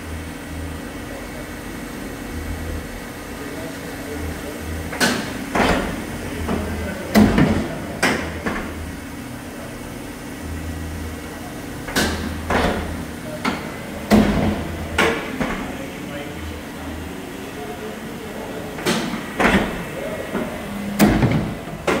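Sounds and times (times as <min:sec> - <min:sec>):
mechanical clunks and knocks: 0:04.9 - 0:08.8, 0:11.8 - 0:15.8, 0:18.8 - 0:22.0.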